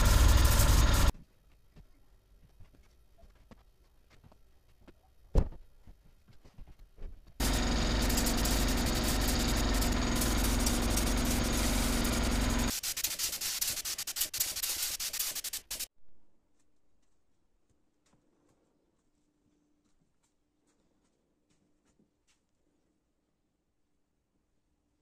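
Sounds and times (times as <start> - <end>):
spray gun hissing: 0.0 - 1.1, 7.4 - 15.9
steady hum: 0.0 - 1.1, 7.4 - 12.7.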